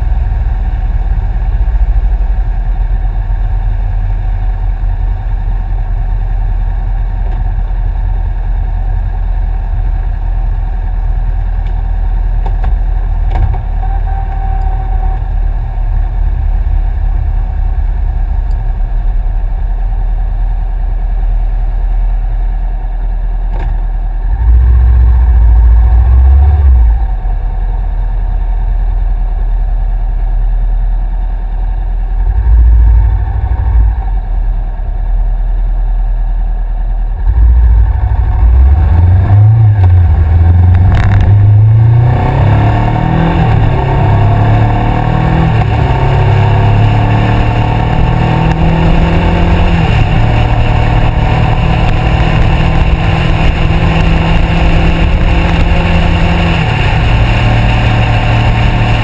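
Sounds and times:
motorcycle engine revving: 0:37.2 - 0:59.0.

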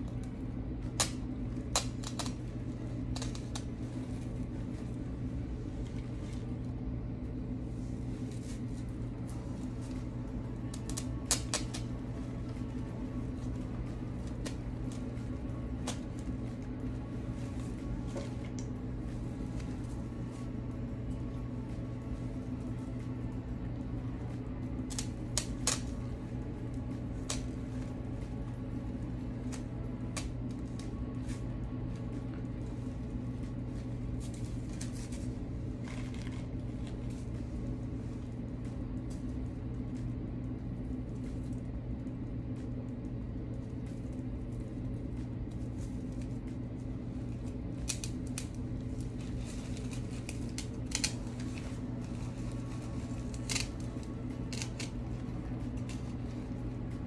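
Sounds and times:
steady low hum: 0:00.0 - 0:57.0
scissors snipping: 0:10.7 - 0:11.9, 0:49.2 - 0:55.1.

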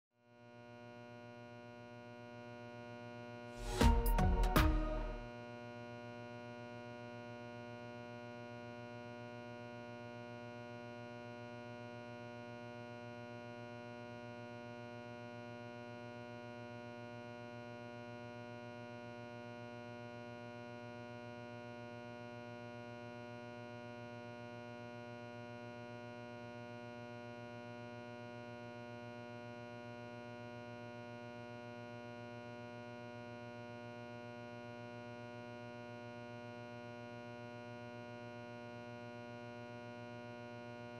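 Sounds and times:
synthesizer drone: 0:03.6 - 0:05.3.

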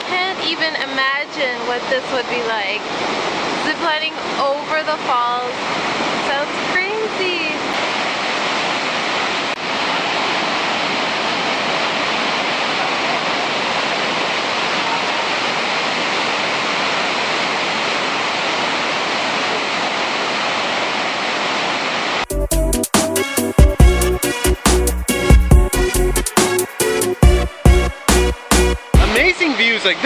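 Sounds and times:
waterfall thundering: 0:00.0 - 0:30.0.

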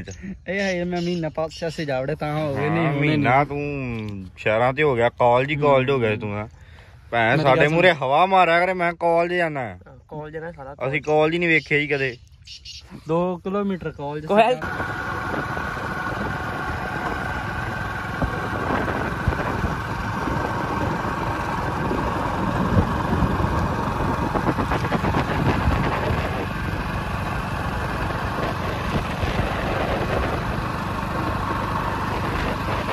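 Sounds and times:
motorcycle engine running: 0:14.4 - 0:32.9
wind on microphone: 0:14.6 - 0:27.0, 0:27.7 - 0:32.9.

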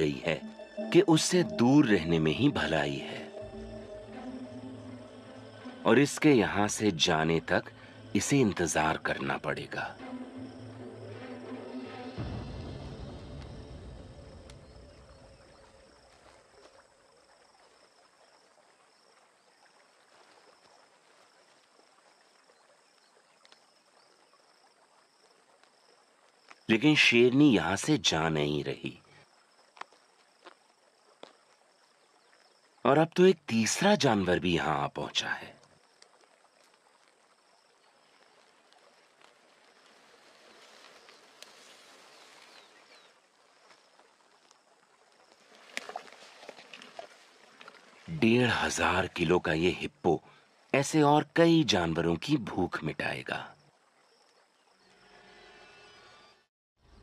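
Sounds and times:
background music: 0:00.0 - 0:15.5
insects chirping: 0:00.0 - 0:57.0
soft hiss: 0:35.1 - 0:49.2.

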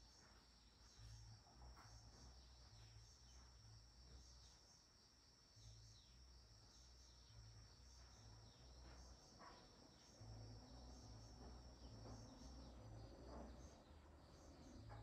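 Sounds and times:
crickets chirping: 0:00.0 - 0:15.0
low uneven rumble: 0:07.3 - 0:15.0.

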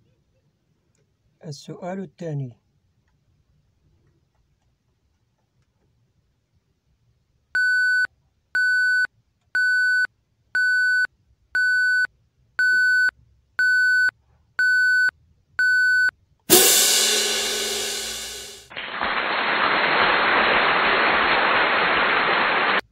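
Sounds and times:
short electronic beeps: 0:07.6 - 0:16.1
loud crash: 0:16.5 - 0:22.8.

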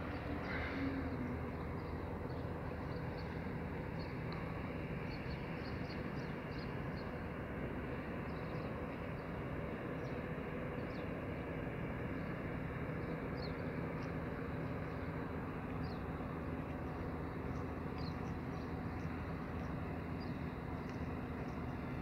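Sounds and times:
low machine hum: 0:00.0 - 0:22.0.

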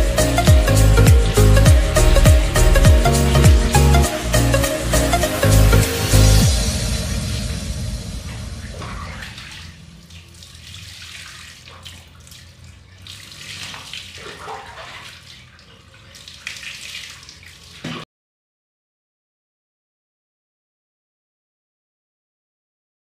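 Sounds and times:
water splashing and dripping: 0:00.0 - 0:04.2, 0:04.9 - 0:18.1
electronic music: 0:00.0 - 0:09.4.

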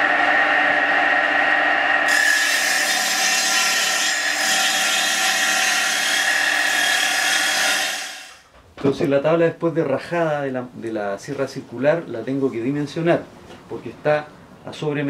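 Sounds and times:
saw blade cutting wood: 0:00.0 - 0:08.4
table saw motor humming: 0:00.0 - 0:08.4.

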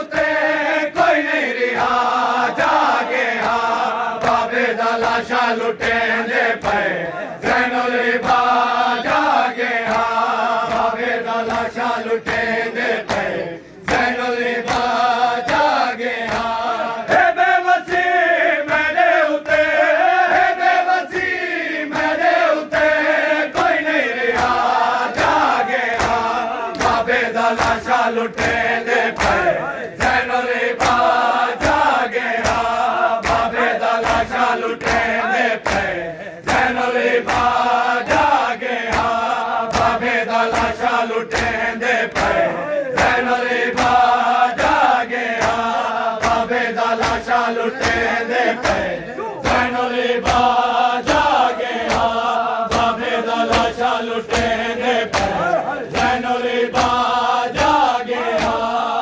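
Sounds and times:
men chanting a lament: 0:00.0 - 0:59.0
hands beating chests: 0:32.4 - 0:58.8.

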